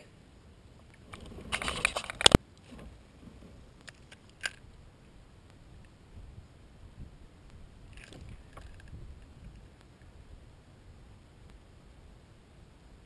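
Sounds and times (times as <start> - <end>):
handling noise on a kayak: 0.8 - 4.8, 7.5 - 10.2.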